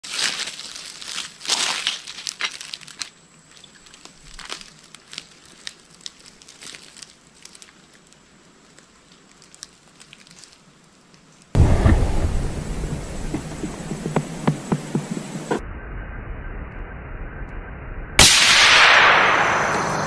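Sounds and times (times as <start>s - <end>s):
crunching in dry leaves: 0.0s - 14.8s.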